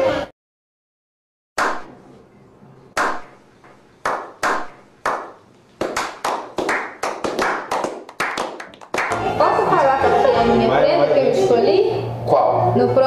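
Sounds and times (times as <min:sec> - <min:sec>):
small group clapping: 0:04.0 - 0:09.6.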